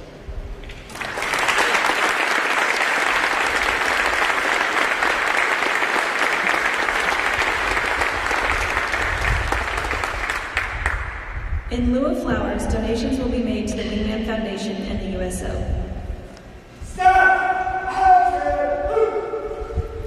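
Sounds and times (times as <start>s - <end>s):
audience applauding: 0.8s - 11.2s.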